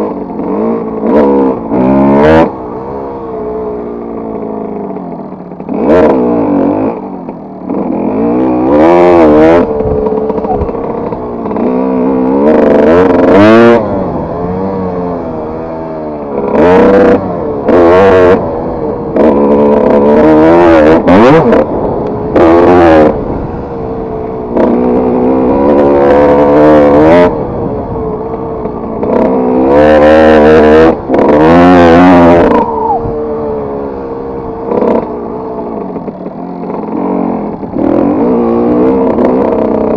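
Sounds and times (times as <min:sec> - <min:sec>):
motocross engine revving: 0:00.0 - 0:39.9.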